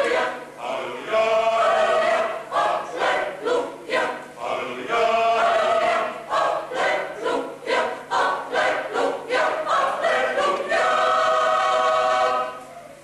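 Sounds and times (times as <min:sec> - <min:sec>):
mixed choir singing: 0:00.0 - 0:12.7.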